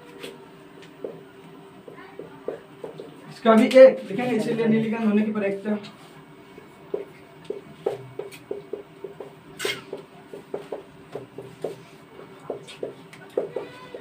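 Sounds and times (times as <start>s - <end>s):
marker writing on whiteboard: 6.9s - 14.0s.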